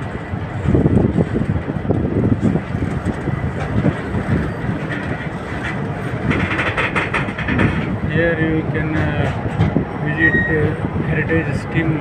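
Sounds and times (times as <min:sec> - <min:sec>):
train wheels rumbling on rail: 0:00.0 - 0:12.0
wheel clatter: 0:00.6 - 0:10.6.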